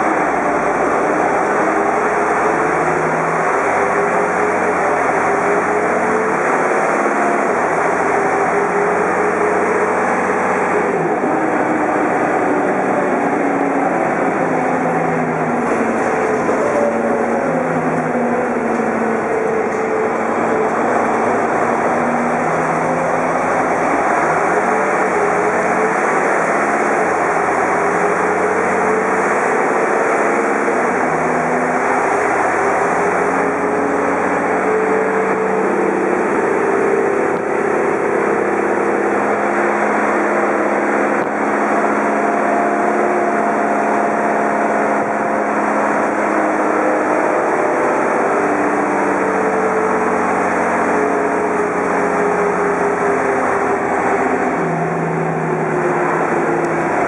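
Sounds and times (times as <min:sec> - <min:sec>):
bus engine accelerating: 0:00.0 - 0:57.0
road noise: 0:00.0 - 0:57.0.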